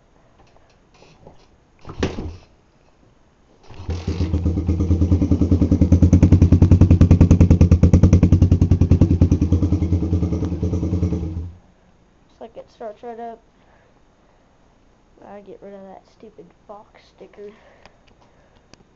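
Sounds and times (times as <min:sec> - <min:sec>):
motorcycle engine starting and idling: 0:03.6 - 0:11.6.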